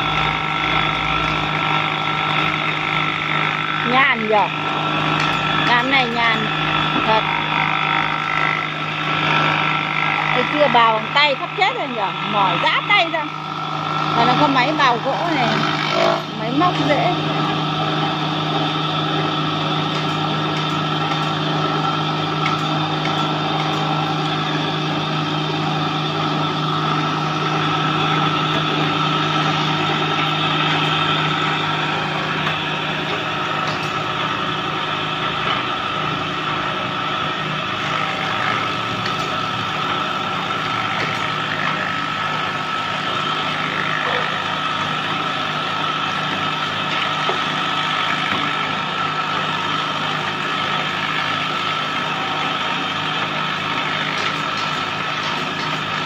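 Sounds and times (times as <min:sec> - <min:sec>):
wood planer whining: 0:00.0 - 0:56.0.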